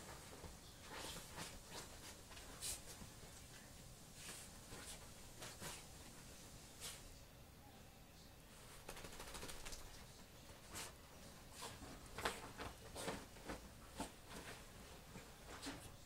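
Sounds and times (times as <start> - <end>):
dog rustling bedding: 0.0 - 7.2, 10.4 - 16.0.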